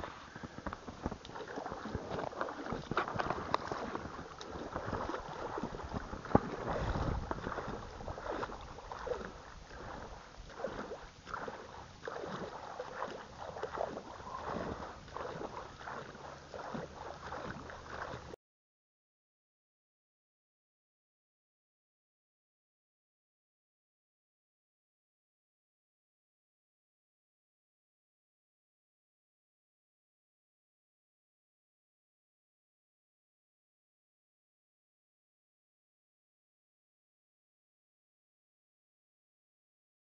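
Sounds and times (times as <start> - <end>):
water sloshing and splashing: 0.0 - 18.4.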